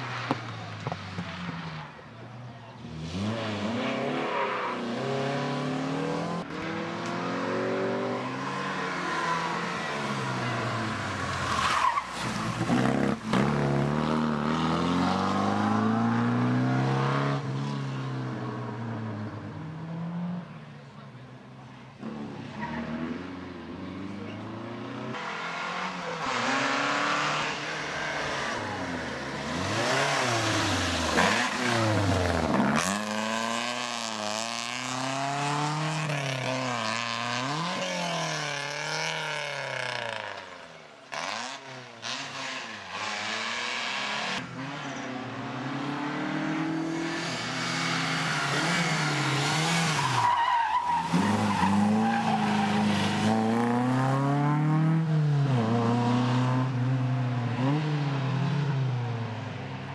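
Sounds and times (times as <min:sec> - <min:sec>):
rally car engine revving: 0:22.0 - 0:59.2.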